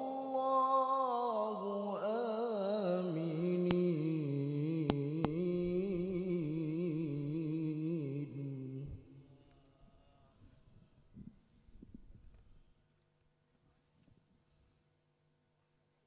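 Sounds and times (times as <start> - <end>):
man reciting melismatic chant: 0.0 - 10.6.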